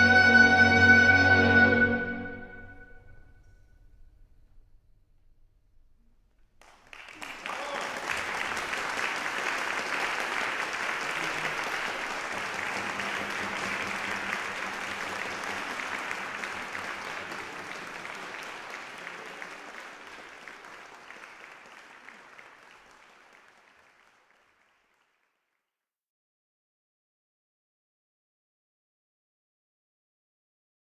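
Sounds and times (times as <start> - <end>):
audience applauding: 6.6 - 25.4.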